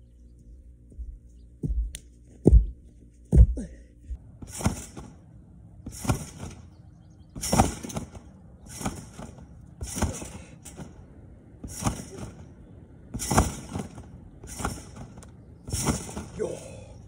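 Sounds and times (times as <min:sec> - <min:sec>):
thud on trampoline mat: 0:04.4 - 0:05.1, 0:05.9 - 0:06.6, 0:07.4 - 0:10.9, 0:13.1 - 0:16.4
trampoline springs jangling: 0:04.4 - 0:17.0.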